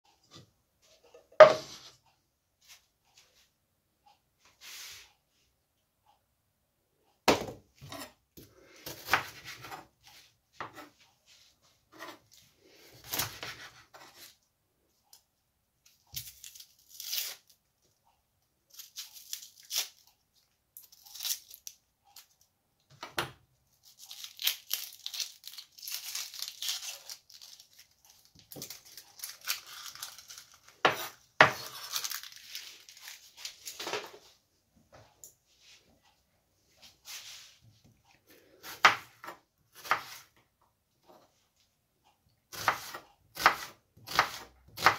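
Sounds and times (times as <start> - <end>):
onion skin crackling and tearing: 16.1 - 17.6, 18.7 - 20.1, 20.8 - 22.3, 23.8 - 33.8.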